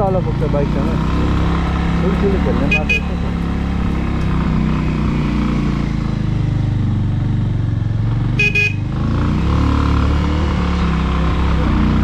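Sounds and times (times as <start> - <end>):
motorcycle engine running: 0.0 - 12.0
short horn beeps: 2.7 - 3.2, 8.4 - 8.8.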